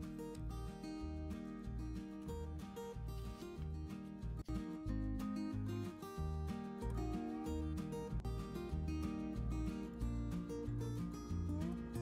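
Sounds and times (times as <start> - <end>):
plucked guitar: 0.0 - 12.0
steady bass line: 0.0 - 12.0.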